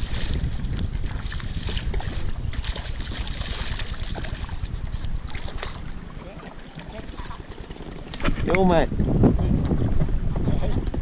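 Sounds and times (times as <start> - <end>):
wind rumbling on microphone: 0.0 - 11.0
fish splashing at water surface: 1.3 - 8.0.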